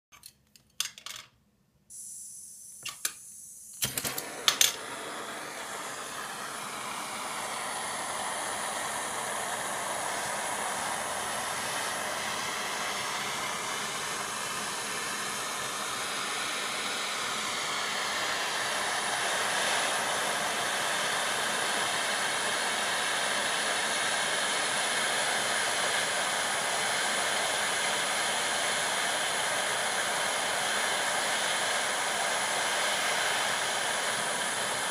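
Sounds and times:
faint hiss of gas: 0:01.9 - 0:34.9
torch flame hissing: 0:01.9 - 0:34.9
gas torch handling clicks: 0:03.8 - 0:04.8.

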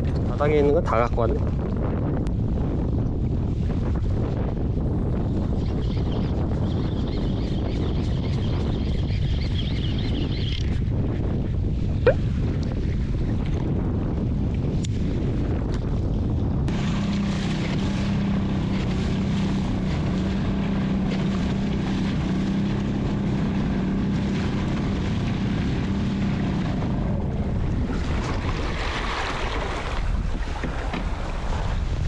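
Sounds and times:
wind buffeting microphone: 0:00.0 - 0:32.0
waves splashing against kayak hull: 0:16.7 - 0:32.0.

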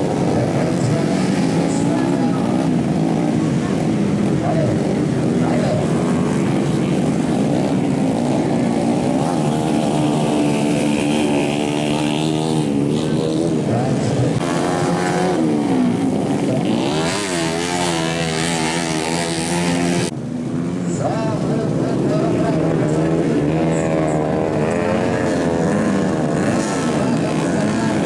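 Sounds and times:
dirt bike engines revving: 0:00.0 - 0:28.0.

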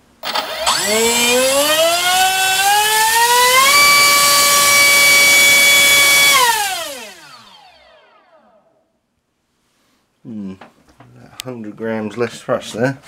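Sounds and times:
electric motor whine: 0:00.2 - 0:08.6.

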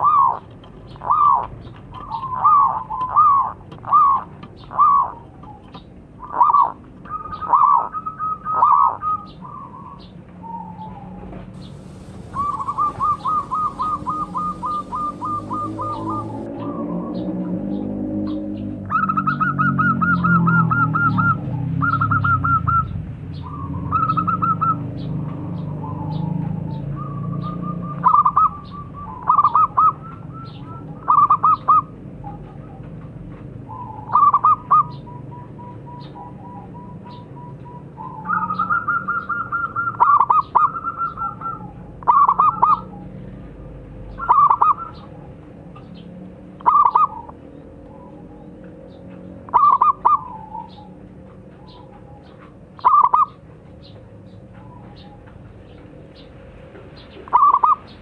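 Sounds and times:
dove cooing: 0:00.0 - 0:17.2, 0:18.9 - 0:32.9, 0:33.7 - 0:43.2, 0:44.2 - 0:45.3, 0:46.6 - 0:53.5, 0:57.1 - 0:58.0.

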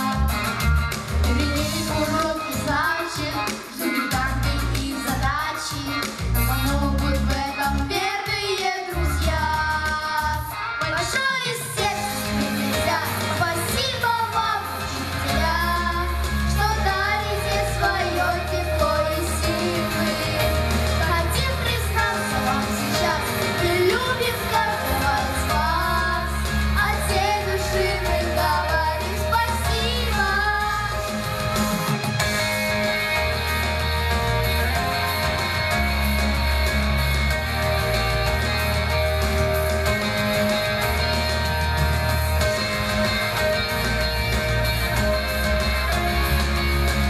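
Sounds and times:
backing music with bass line: 0:00.0 - 0:47.0
children singing into microphones: 0:01.5 - 0:31.0.

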